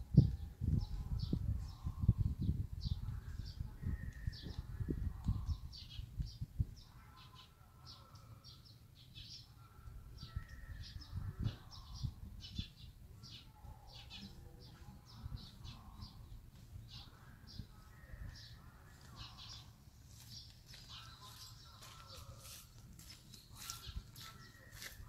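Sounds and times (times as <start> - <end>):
small birds chirping: 0.2 - 25.0.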